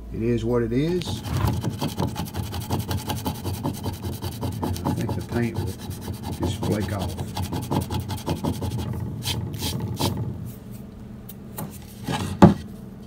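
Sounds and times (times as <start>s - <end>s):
fingertips scraping paint on wood: 0.9s - 10.3s.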